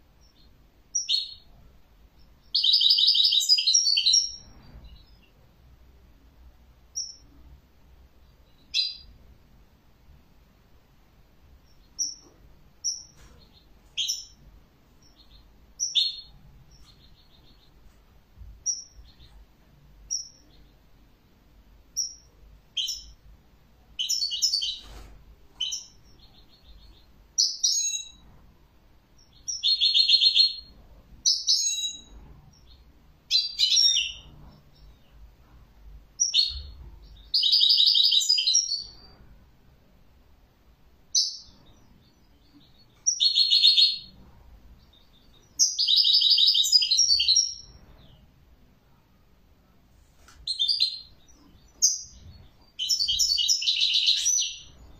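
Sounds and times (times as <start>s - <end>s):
goldfinch chirping and twittering: 2.4s - 5.3s, 24.0s - 25.0s, 29.2s - 35.0s, 36.2s - 39.0s, 41.1s - 44.1s, 44.8s - 48.2s, 50.5s - 54.9s.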